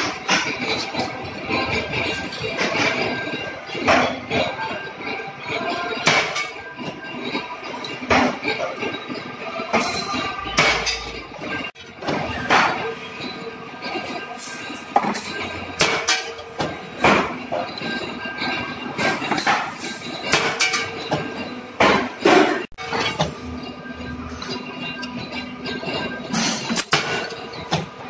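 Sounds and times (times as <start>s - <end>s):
hydraulic press metallic clanks: 0.0s - 28.0s.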